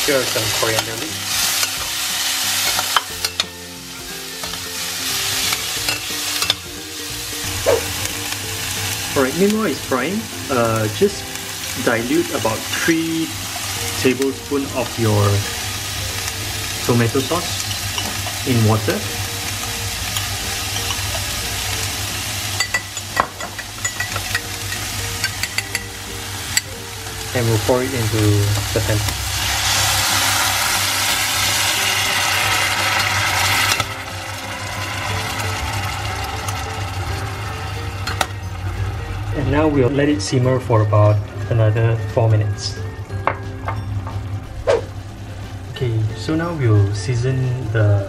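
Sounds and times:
vegetables sizzling in a pan: 0.0 - 40.4, 43.0 - 48.0
metal spoon clinking on glass: 22.6 - 25.9.

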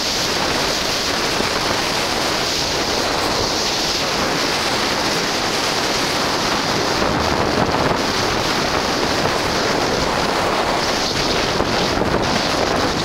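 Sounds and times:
snowboard sliding over snow: 0.0 - 13.0
wind on microphone: 0.0 - 13.0.

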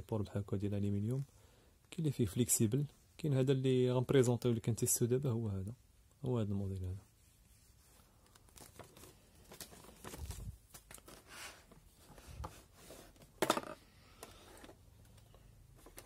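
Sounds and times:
paper leaflet rustling: 7.6 - 12.5.

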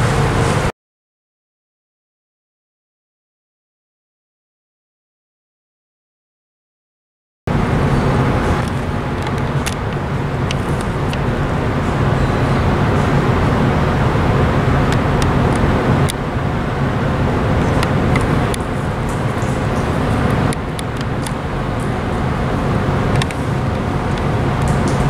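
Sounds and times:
low rumble of ship engines: 0.0 - 0.7, 7.5 - 25.0.

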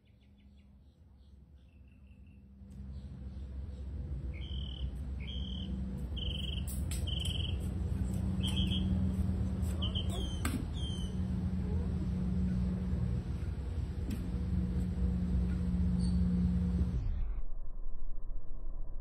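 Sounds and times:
small birds chirping: 0.0 - 11.2, 15.9 - 16.3
steady low hum: 0.0 - 19.0.

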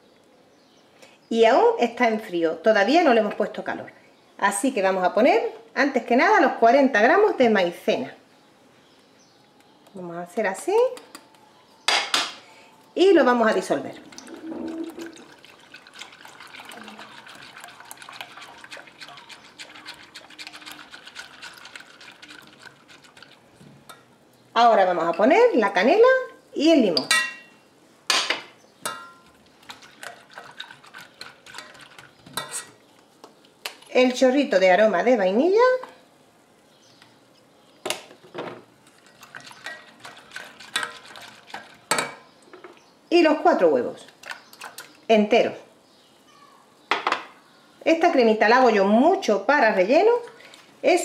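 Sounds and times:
whisk ticking: 13.9 - 24.0, 28.9 - 32.5
whisk swishing liquid in a pan: 14.0 - 23.5, 29.6 - 32.7, 38.9 - 42.0.

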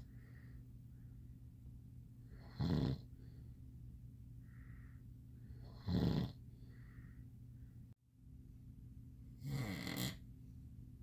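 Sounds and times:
soft breathing: 0.0 - 1.4, 2.2 - 8.0
steady low hum: 0.0 - 11.0
man snoring: 2.4 - 3.1, 5.6 - 6.4, 9.4 - 10.2.

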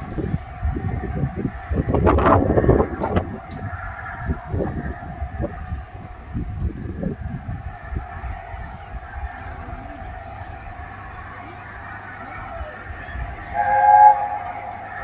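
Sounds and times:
distant steam locomotive whistle: 11.6 - 15.0.

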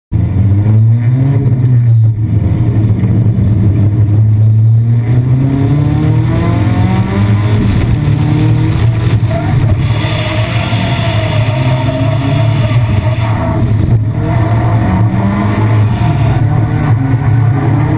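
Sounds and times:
car engine revving: 0.1 - 17.9.

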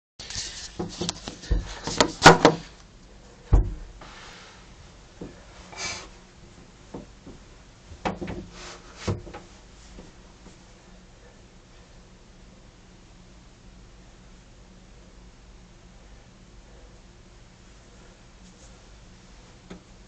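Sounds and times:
heavy thump: 0.8 - 2.7, 3.4 - 4.2.

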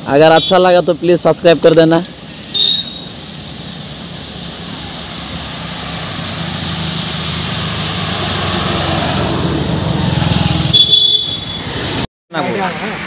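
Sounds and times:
vehicle engine approaching: 3.5 - 10.8.

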